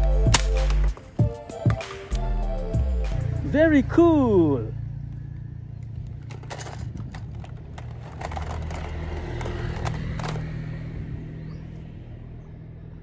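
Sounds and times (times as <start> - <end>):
low engine rumble: 2.2 - 13.0
plastic toy guns clicking: 6.2 - 10.5.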